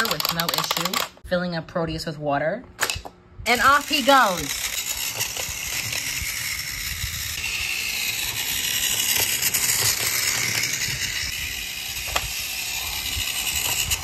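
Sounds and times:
toy train motor whirring: 0:00.0 - 0:01.2, 0:03.5 - 0:14.0
wheels clacking over track: 0:08.0 - 0:11.3.

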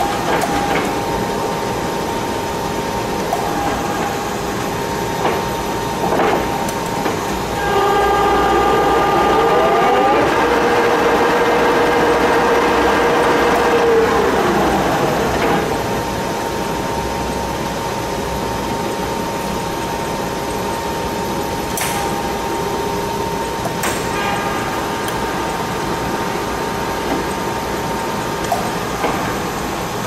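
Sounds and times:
machine humming: 0:00.0 - 0:30.0
lathe spindle winding down: 0:07.6 - 0:15.7.

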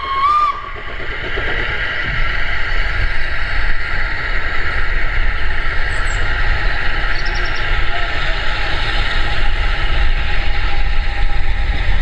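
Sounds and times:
steam locomotive whistle: 0:00.0 - 0:00.7
locomotive exhaust rumble: 0:00.0 - 0:12.0
steam hissing: 0:00.0 - 0:12.0.

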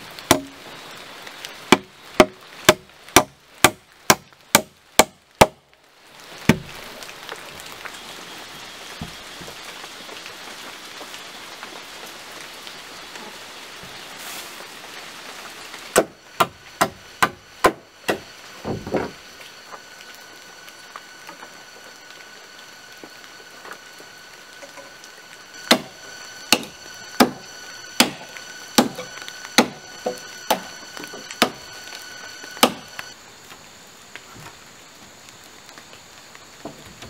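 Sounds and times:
machete chopping wood: 0:00.3 - 0:00.6, 0:01.7 - 0:05.6, 0:06.5 - 0:06.7, 0:15.9 - 0:18.2, 0:25.6 - 0:27.4, 0:28.0 - 0:28.2, 0:28.8 - 0:30.7, 0:31.4 - 0:31.6, 0:32.6 - 0:32.9.

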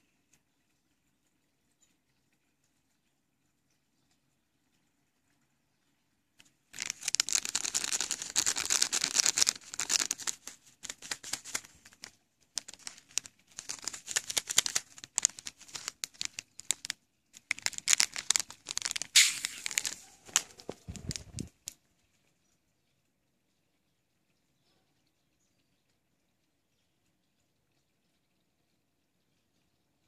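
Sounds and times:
plastic sachet crinkling: 0:06.7 - 0:21.8.

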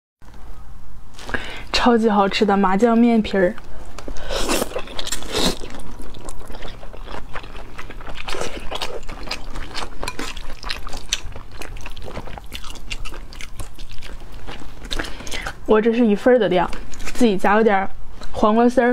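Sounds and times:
wet chewing: 0:03.6 - 0:15.7, 0:16.6 - 0:17.3
person slurping noodles: 0:04.2 - 0:06.8.

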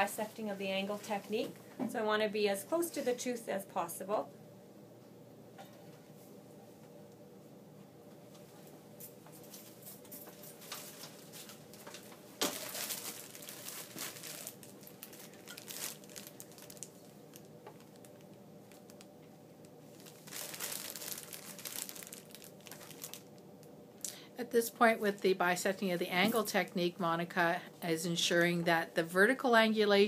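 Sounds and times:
plastic bag crinkling: 0:09.8 - 0:23.7.

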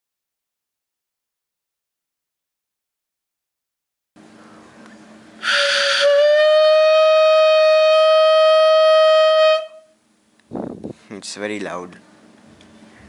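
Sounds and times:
homemade air horn honk: 0:05.4 - 0:10.0.

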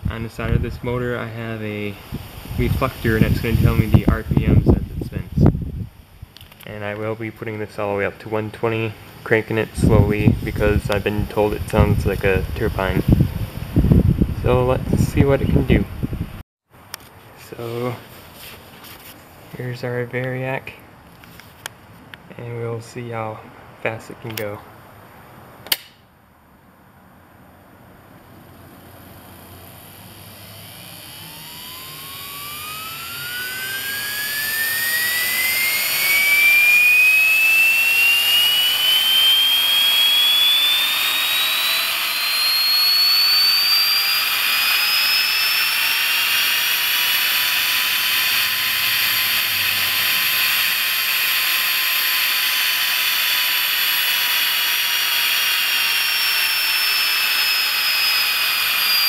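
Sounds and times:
electric motor whine: 0:00.0 - 0:06.6, 0:28.4 - 0:59.0.

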